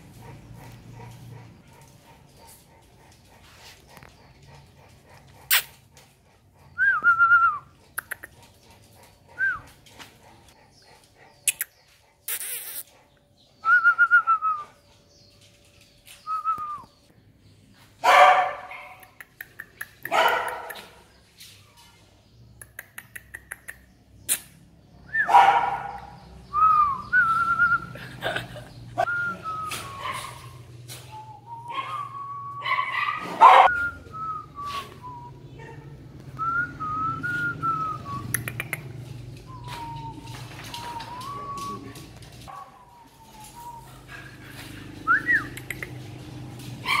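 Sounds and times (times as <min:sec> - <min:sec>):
dogs barking: 0:00.0 - 0:07.0, 0:18.0 - 0:19.3, 0:20.0 - 0:21.3, 0:25.1 - 0:36.1, 0:37.1 - 0:47.0
sharp clicks: 0:45.5 - 0:46.0.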